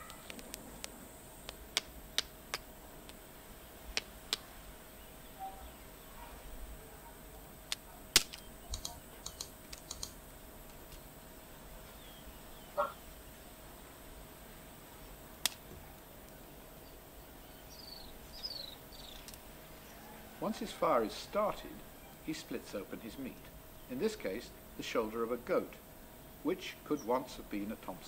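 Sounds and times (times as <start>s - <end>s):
twigs crackling in campfire: 0.0s - 3.2s, 7.7s - 11.2s, 15.1s - 16.8s.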